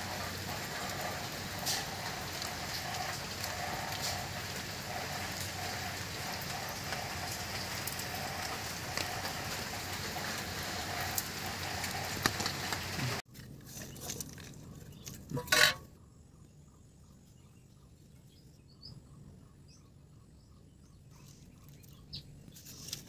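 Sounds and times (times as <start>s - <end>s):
rain falling on wet ground: 0.0s - 13.2s.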